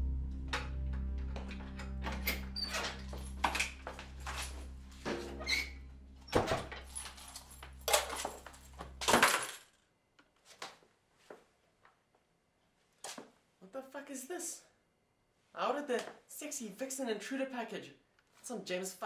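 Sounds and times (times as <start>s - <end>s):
low steady drone: 0.0s - 9.0s
keys jangling: 6.6s - 9.6s.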